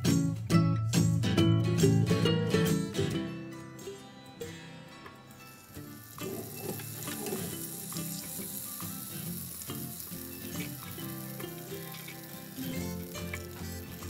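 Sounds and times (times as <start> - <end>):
butter sizzling in pan: 5.4 - 14.0.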